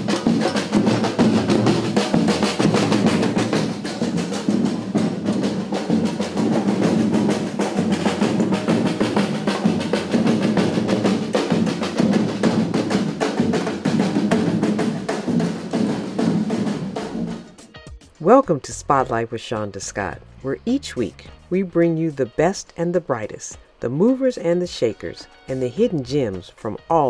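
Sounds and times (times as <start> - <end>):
samba drums playing: 0.0 - 19.2.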